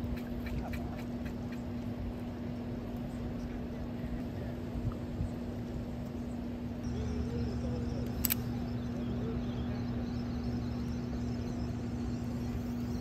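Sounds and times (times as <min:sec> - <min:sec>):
low rumble with hum: 0:00.0 - 0:13.0
sharp click: 0:08.0 - 0:08.5.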